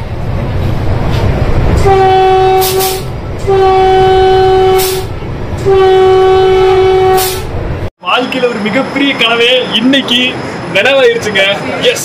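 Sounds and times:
train rumbling: 0.0 - 12.0
train horn blasts: 1.8 - 7.6.

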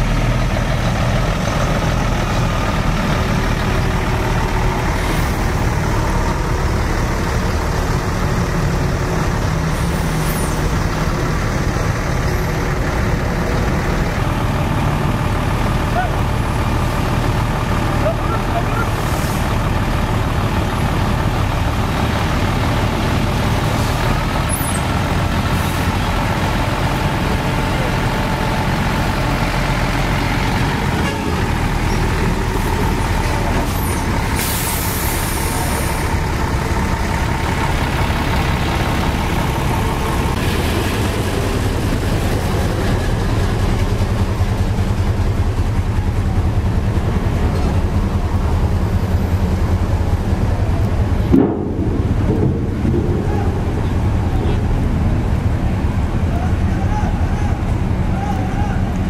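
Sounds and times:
truck diesel engines rumbling: 0.0 - 59.0
air brake hiss: 33.7 - 36.0.

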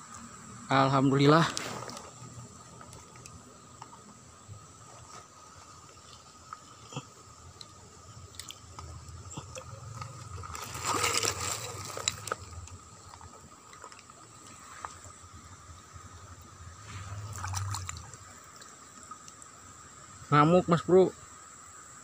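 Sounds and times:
shallow stream water: 0.0 - 22.0
water splash: 9.3 - 14.5, 16.8 - 19.1.

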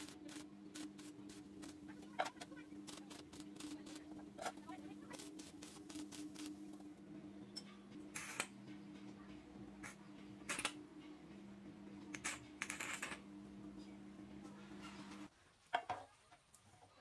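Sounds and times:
arc welding crackling: 0.0 - 6.8, 8.1 - 8.6, 9.8 - 10.8, 12.1 - 13.4
low hum: 0.0 - 15.3.

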